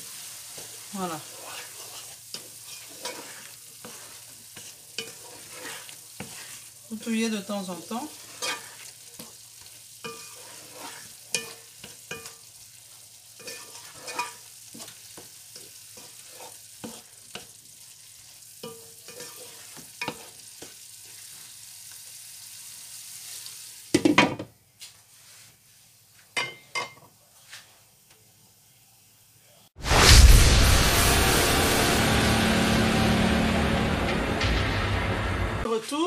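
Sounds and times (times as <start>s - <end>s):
wooden spoon scraping a pan: 0.0s - 21.5s
stew sizzling: 0.0s - 36.0s.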